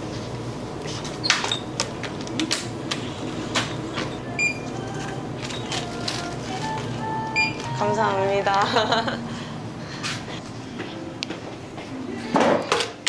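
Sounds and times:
steady low hum: 0.0 - 12.3.

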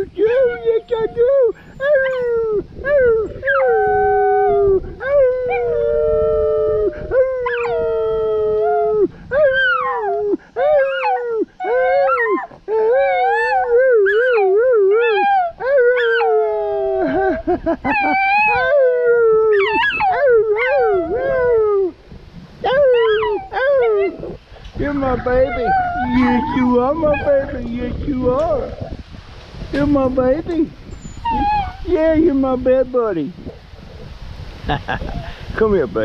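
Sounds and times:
small dog howling: 0.3 - 17.1, 17.9 - 22.0, 22.6 - 24.4, 25.0 - 27.6, 31.2 - 31.9.

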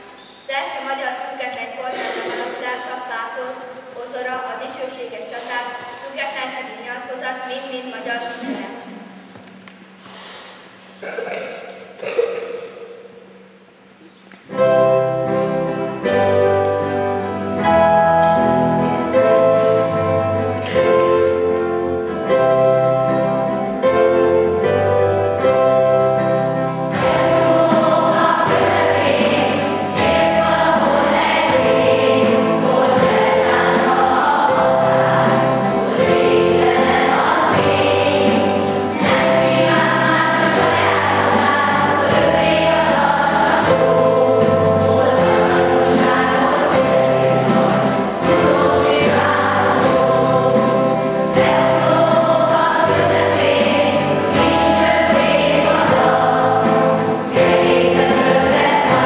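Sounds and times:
children's choir singing: 1.9 - 2.7, 14.5 - 59.0
instrumental accompaniment: 13.1 - 59.0.

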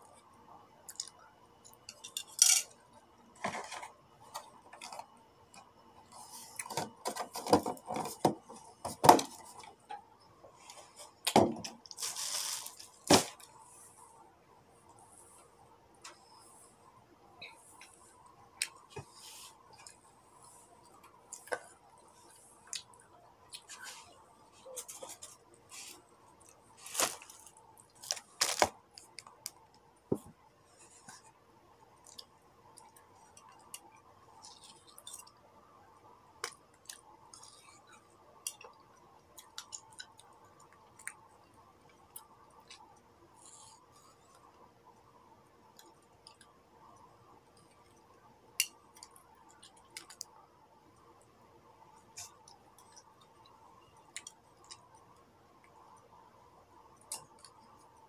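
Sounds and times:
faint steady hum: 0.0 - 58.0
person chewing wet fruit: 20.8 - 29.5, 36.5 - 44.5, 52.0 - 56.1.

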